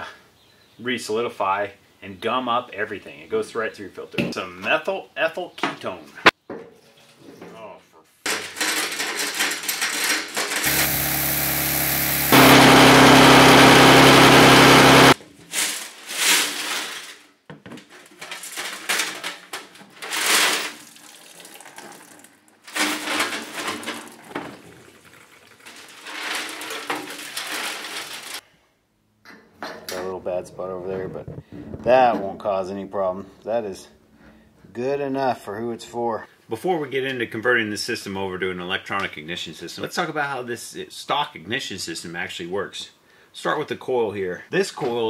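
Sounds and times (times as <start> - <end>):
lawnmower engine running: 10.6 - 15.2.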